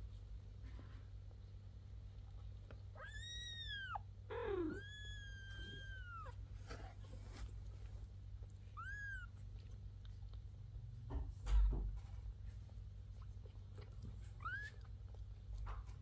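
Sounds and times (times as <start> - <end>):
faint steady hum: 0.0 - 16.0
kittens mewing: 2.9 - 7.0.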